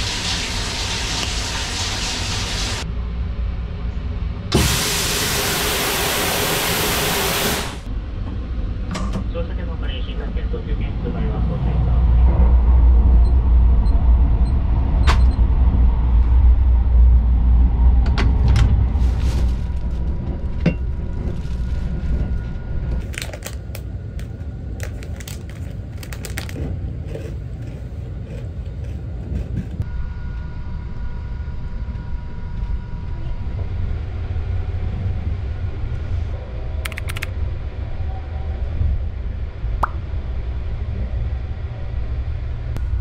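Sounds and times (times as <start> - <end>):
train rumbling: 0.0 - 43.0
plastic bag crinkling: 24.7 - 26.7
clicks: 36.9 - 37.3.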